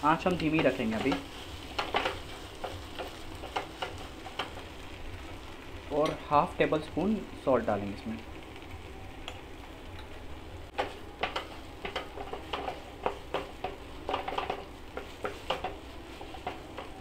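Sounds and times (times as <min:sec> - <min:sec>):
light sizzle: 0:00.0 - 0:17.0
spatula scraping frying pan: 0:00.3 - 0:05.0, 0:10.7 - 0:17.0.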